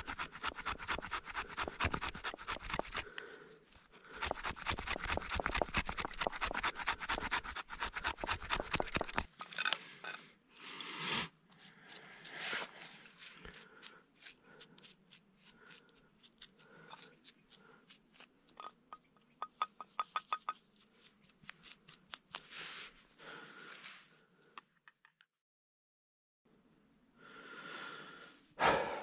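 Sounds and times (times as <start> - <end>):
blade scraping a dry stick: 0.0 - 18.8, 19.4 - 23.0.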